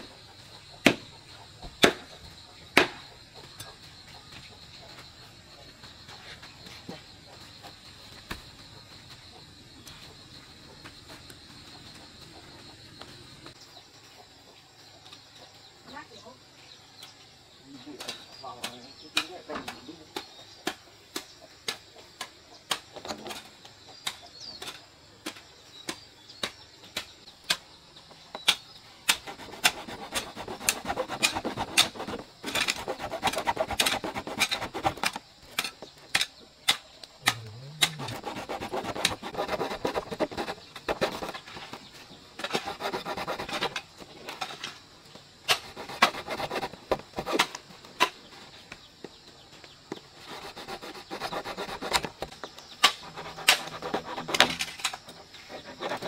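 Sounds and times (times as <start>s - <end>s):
rasping scraping on wood: 29.1s - 35.7s, 37.2s - 41.5s, 42.4s - 44.0s, 45.5s - 47.6s, 50.2s - 56.0s.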